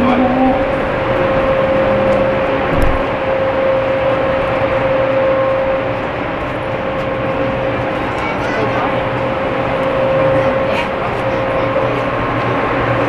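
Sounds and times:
constant hum: 0:00.0 - 0:13.0
ship machinery running: 0:00.0 - 0:13.0
single thump: 0:02.7 - 0:03.1.

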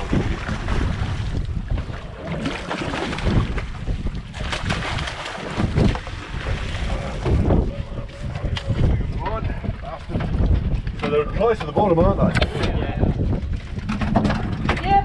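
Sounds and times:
water sloshing against a boat: 0:00.0 - 0:15.0
wind buffeting microphone: 0:00.0 - 0:15.0.

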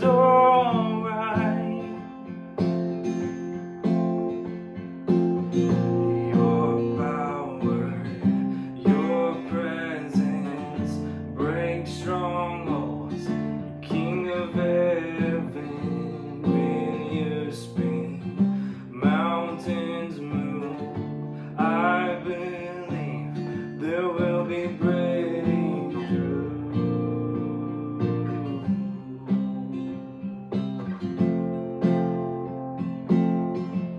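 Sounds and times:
man singing: 0:00.0 - 0:02.4, 0:05.5 - 0:30.2
acoustic guitar strumming: 0:00.0 - 0:33.9.

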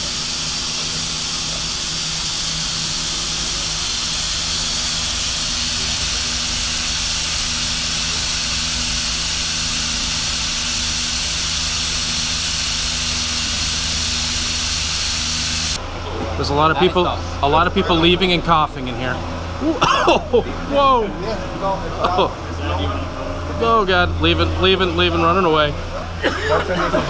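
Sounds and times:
pressurised water spray hissing: 0:00.0 - 0:15.8
low machine hum: 0:00.0 - 0:27.0.

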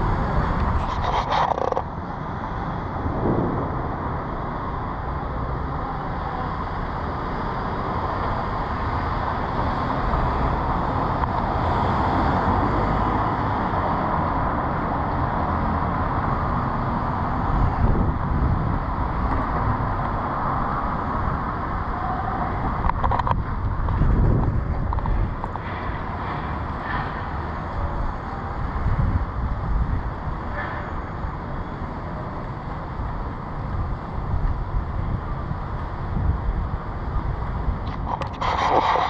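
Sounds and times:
vehicles passing on city street: 0:00.0 - 0:39.0.

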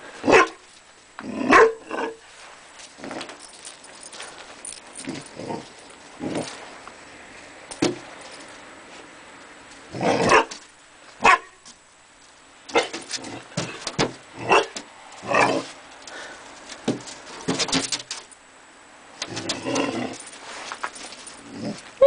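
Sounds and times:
puppy barking and yipping: 0:01.5 - 0:02.1, 0:10.0 - 0:10.6, 0:11.2 - 0:11.6, 0:14.4 - 0:15.6.

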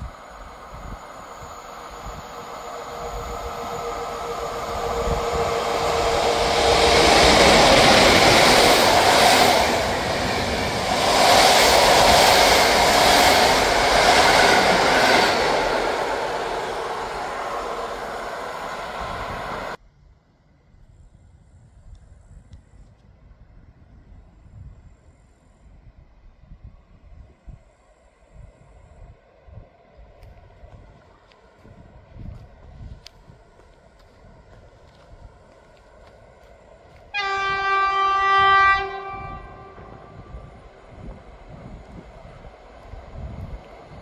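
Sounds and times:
passenger train passing: 0:00.0 - 0:19.8, 0:26.2 - 0:44.0
wheels on rails: 0:00.0 - 0:19.8.

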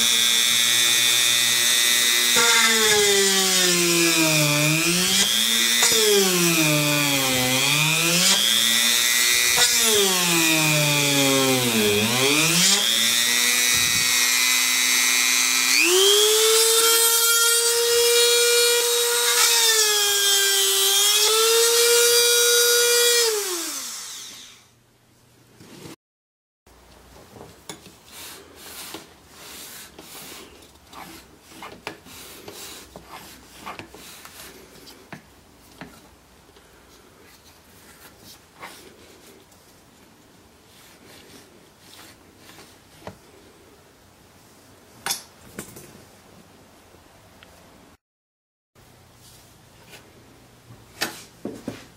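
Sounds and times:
rotary tool drilling into wood: 0:00.0 - 0:24.7.

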